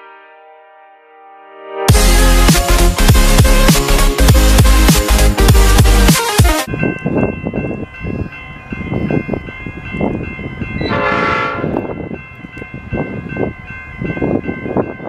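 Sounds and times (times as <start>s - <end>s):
train horn blast: 10.8s - 11.9s.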